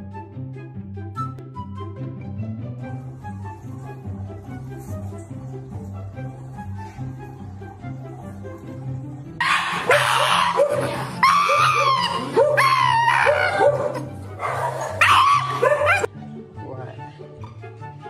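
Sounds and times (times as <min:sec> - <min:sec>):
background music: 0:00.0 - 0:18.0
dog wailing and screaming: 0:09.4 - 0:16.1.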